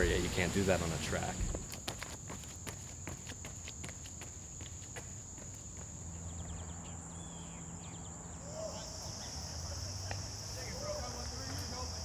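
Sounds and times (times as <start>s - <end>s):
insects chirring: 0.0s - 12.0s
footsteps on asphalt: 1.3s - 6.9s, 10.0s - 12.0s.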